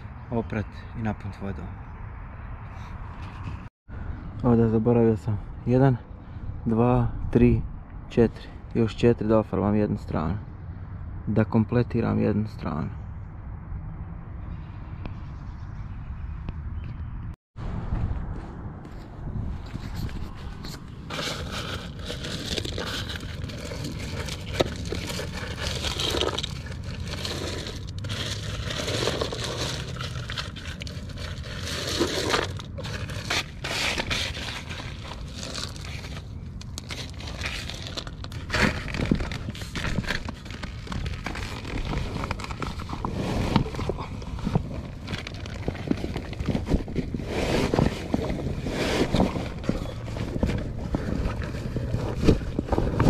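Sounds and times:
gravel and stones crunching: 18.0s - 53.0s.

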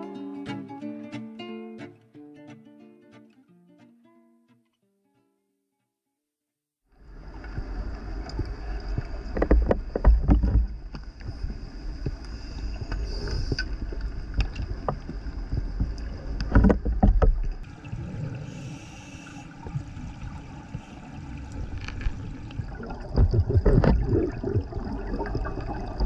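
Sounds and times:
underwater clicks and gurgles: 7.0s - 26.0s
underwater low rumble: 7.0s - 26.0s.

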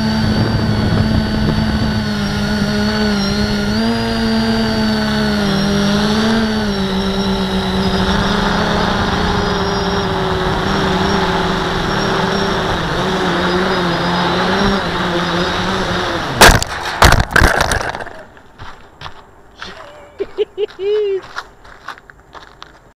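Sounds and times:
quadcopter motors humming: 0.0s - 21.4s
quadcopter impacts on gravel: 14.4s - 20.4s.

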